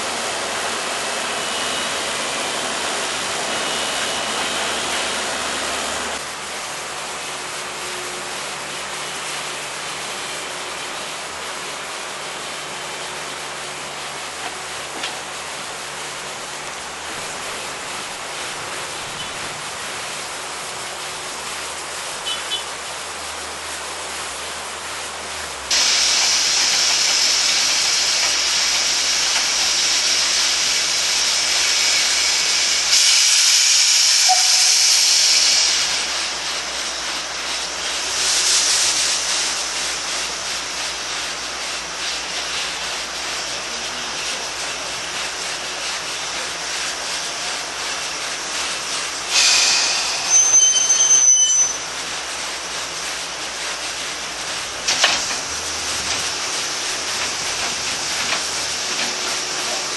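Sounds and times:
steam locomotive hissing: 0.0 - 59.9
high thin squeal: 25.7 - 37.2, 49.2 - 52.1.

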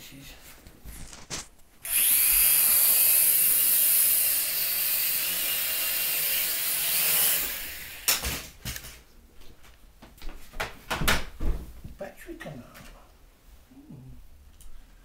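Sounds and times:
toy drone motors whining: 1.8 - 8.1.

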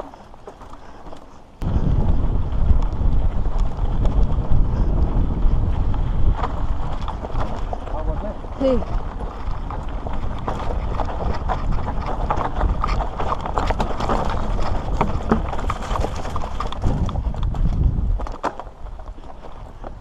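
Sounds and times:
bike rattling: 0.0 - 20.0
low rumble: 1.6 - 18.2
tyres crunching over stones: 5.7 - 20.0.

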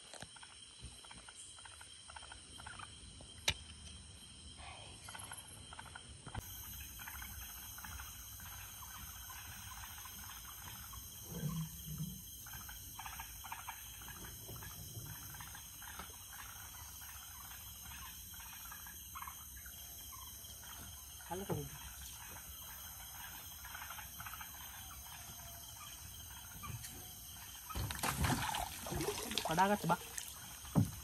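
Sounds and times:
crickets chirring: 0.0 - 31.0
water splashes and drips: 27.8 - 31.0.

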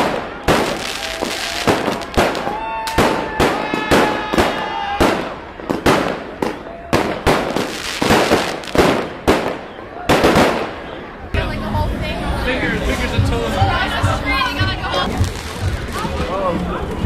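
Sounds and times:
fireworks banging: 0.0 - 11.1, 15.0 - 16.3
firecrackers crackling: 0.0 - 11.3, 15.0 - 17.0.

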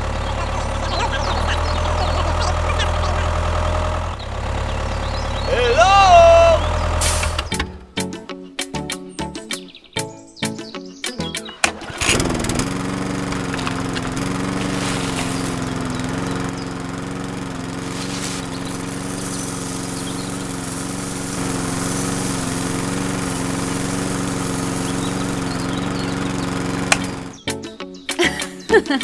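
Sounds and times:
small motor whirring and rattling: 11.5 - 27.4.

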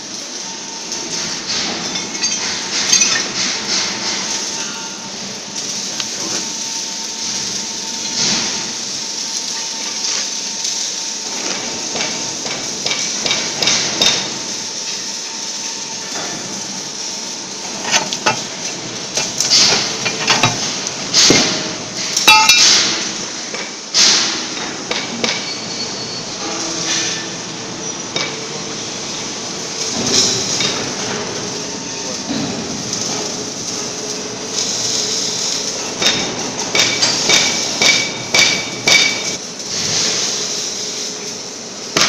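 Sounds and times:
steady hiss: 0.0 - 24.6, 26.3 - 42.0
sharp metallic knocks and clinks: 1.5 - 3.6, 22.2 - 22.9.

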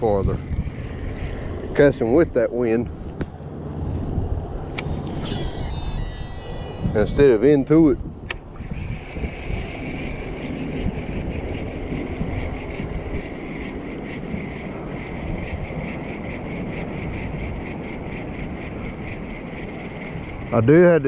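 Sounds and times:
pulsing high whirring: 0.0 - 21.0
wind buffeting microphone: 0.0 - 21.0.

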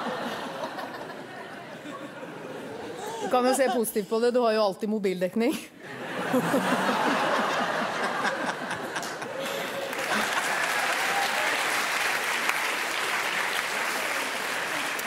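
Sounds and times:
audience laughing: 0.0 - 3.9, 5.8 - 11.3
audience applauding: 7.0 - 15.0.

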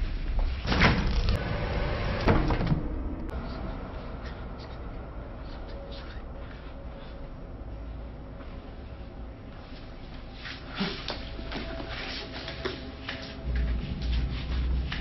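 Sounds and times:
low rumble: 0.1 - 9.6.

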